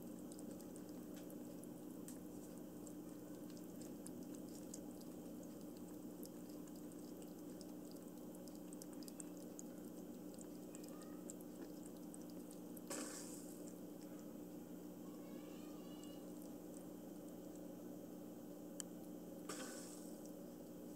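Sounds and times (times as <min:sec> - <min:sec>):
trickling water: 0:00.0 - 0:14.5
kitten lapping water: 0:00.0 - 0:20.9
water fountain pump humming: 0:00.0 - 0:20.9.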